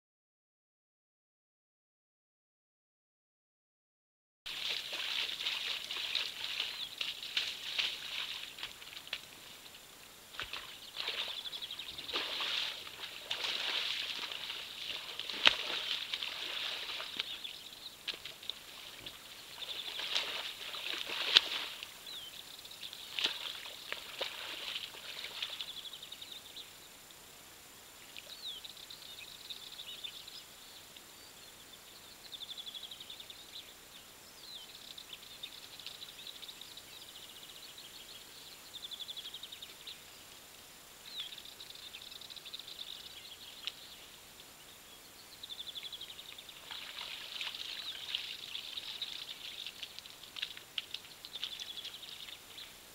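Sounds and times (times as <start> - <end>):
muddy water splashing: 4.5 - 25.8, 46.2 - 52.5
small birds trilling: 4.6 - 27.0, 41.0 - 52.9.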